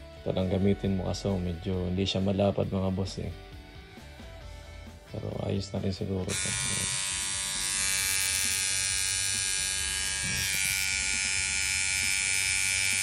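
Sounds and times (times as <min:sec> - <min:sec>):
electric trimmer buzzing: 0:06.2 - 0:13.0.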